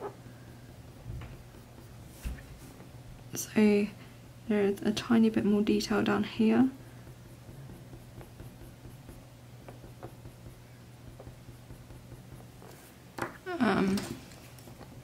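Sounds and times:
low steady hum: 0.0 - 15.0
pencil scratching on paper: 1.4 - 2.4, 5.6 - 13.0.

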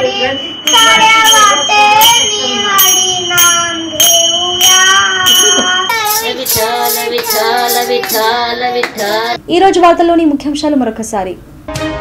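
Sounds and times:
child singing: 0.0 - 9.4
hand cymbals struck: 0.0 - 9.4.

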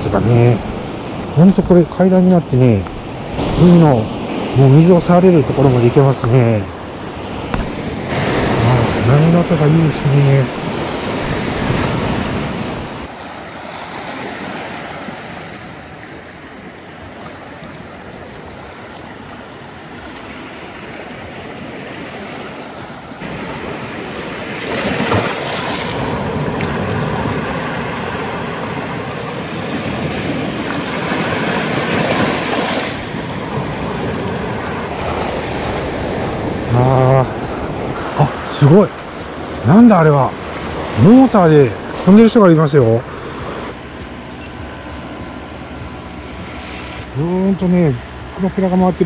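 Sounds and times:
surf breaking over rocks: 23.2 - 36.4.

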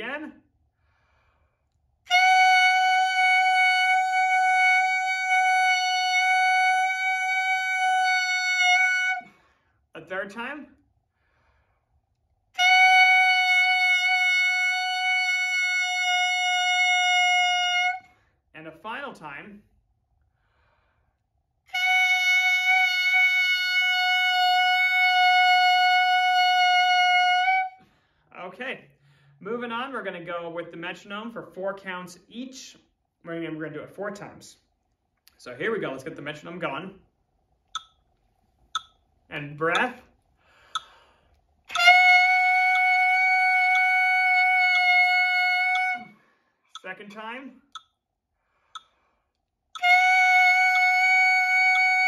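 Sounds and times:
reedy clarinet note: 2.1 - 9.3, 12.6 - 18.1, 21.7 - 27.8, 41.7 - 46.2, 49.8 - 52.0.

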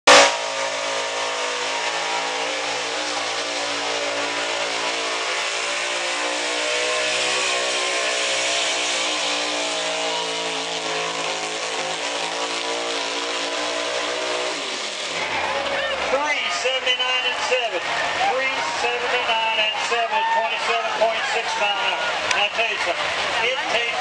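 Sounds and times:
pickup engine at high revs: 0.1 - 24.0.

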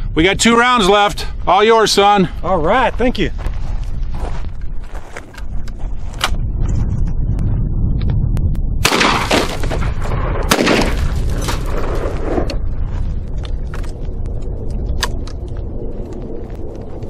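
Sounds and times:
shotgun shots with echo: 8.8 - 11.6.

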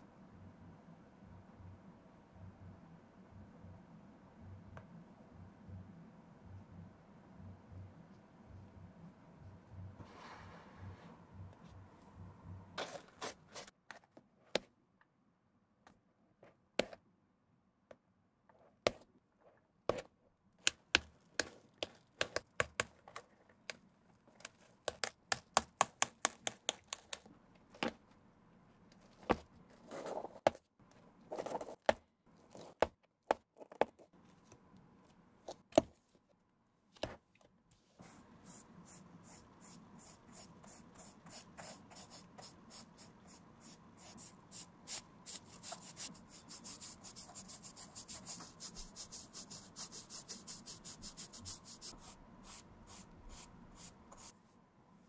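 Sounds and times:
brush stroking leather: 44.1 - 54.3.

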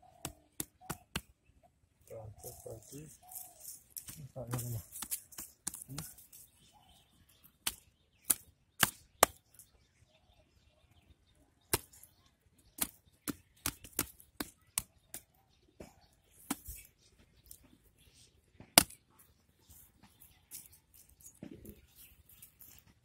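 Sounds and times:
hands slapping wet mud: 7.6 - 9.4, 12.8 - 15.3, 18.7 - 19.0.

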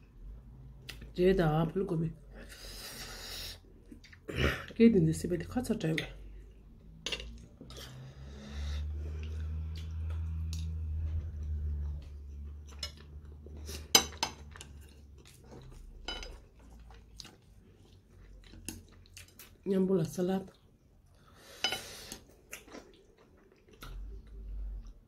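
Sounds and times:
low steady hum: 0.0 - 25.0
chewing: 9.1 - 19.7, 22.0 - 25.0
cutlery clinking against a dish: 13.8 - 14.8, 16.0 - 16.4, 21.6 - 21.9.

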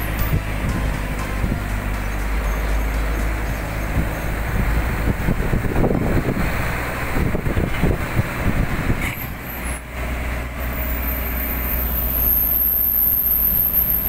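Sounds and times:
engine and tyre rumble: 0.0 - 14.0.

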